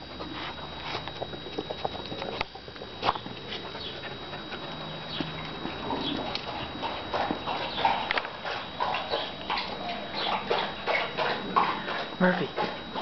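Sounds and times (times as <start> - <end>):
dogs pattering steps: 0.0 - 13.0
dogs snuffling: 0.0 - 13.0.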